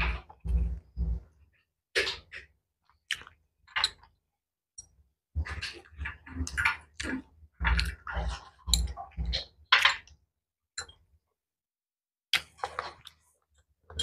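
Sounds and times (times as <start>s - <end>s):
crunchy chewing of food: 2.0s - 4.2s, 12.3s - 14.0s.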